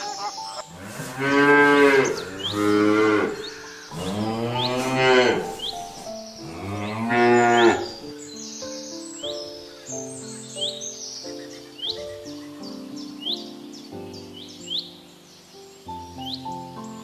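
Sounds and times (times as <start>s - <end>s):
cow mooing: 0.7s - 8.0s.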